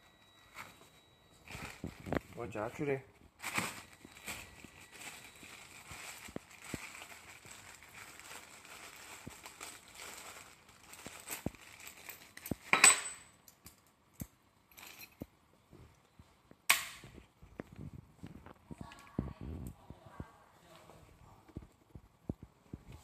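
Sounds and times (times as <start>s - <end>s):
plastic bag crinkling: 1.4s - 12.7s.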